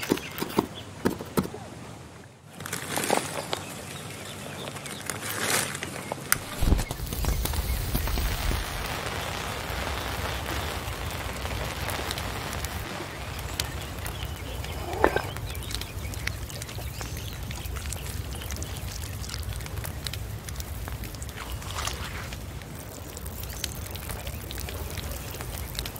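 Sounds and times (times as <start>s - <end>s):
small fire crackling and hissing: 2.4s - 25.9s
sharp pops: 6.3s - 17.1s.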